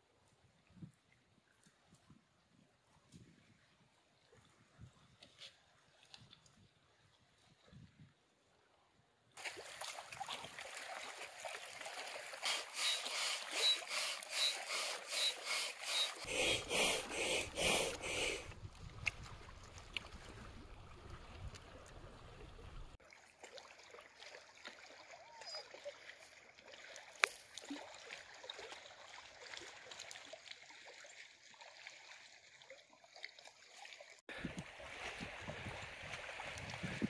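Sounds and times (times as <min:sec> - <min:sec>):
waves lapping against rocks: 0:09.4 - 0:25.0, 0:34.3 - 0:37.0
wind rumble on microphone: 0:18.5 - 0:23.0, 0:34.3 - 0:37.0.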